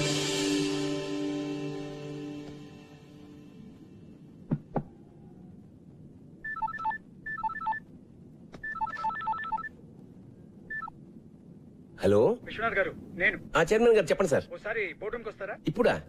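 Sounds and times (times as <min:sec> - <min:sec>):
background music: 0:00.0 - 0:04.4
sharp knocks: 0:04.5 - 0:04.9
phone ringtone beeping melody: 0:06.4 - 0:07.8, 0:08.6 - 0:09.7, 0:10.7 - 0:10.9.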